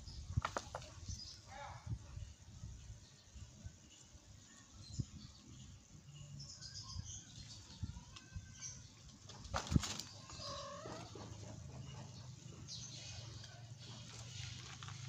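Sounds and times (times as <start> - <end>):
kittens scuffling on gravel: 12.9 - 15.0.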